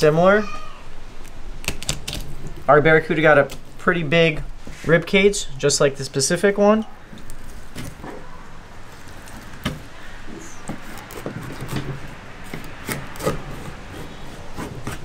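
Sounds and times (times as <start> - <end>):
knife scraping through fish: 10.6 - 15.0.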